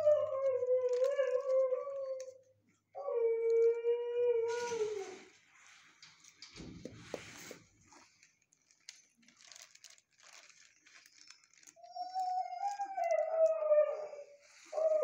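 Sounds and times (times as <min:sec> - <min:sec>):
dog whining howl: 0:00.0 - 0:02.4, 0:03.0 - 0:05.2, 0:11.8 - 0:15.0
faint shuffling: 0:04.4 - 0:15.0
rustling and scuffling: 0:04.5 - 0:13.4.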